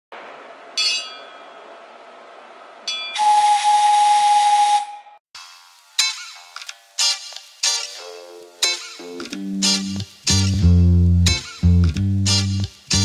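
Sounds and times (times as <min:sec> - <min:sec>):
steam whistle with hiss: 0:03.2 - 0:05.2
guitar music: 0:06.0 - 0:13.0.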